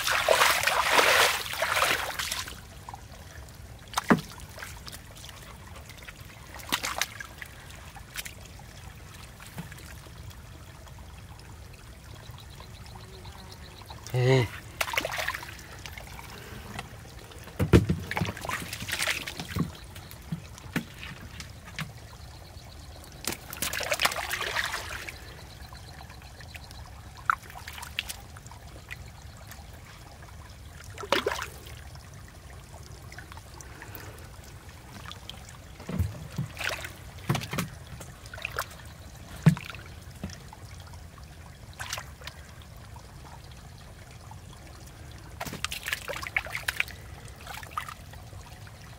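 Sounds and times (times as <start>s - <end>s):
hands splashing in muddy water: 0.0s - 2.6s, 23.2s - 25.2s.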